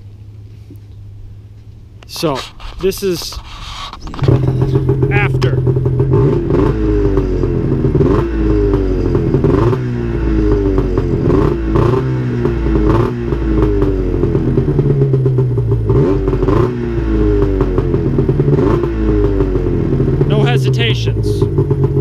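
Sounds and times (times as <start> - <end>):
snowmobile engine revving: 2.1 - 13.9, 15.9 - 21.4.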